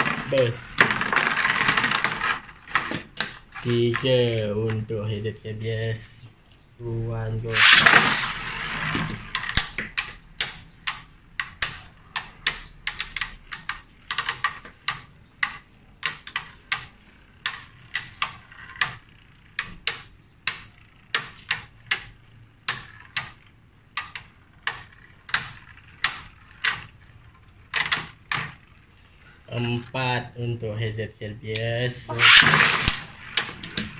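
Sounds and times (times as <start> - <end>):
launcher whir: 7.5 - 9.9, 32.1 - 33.6
spinning tops clacking together: 7.5 - 29.8, 32.1 - 33.9.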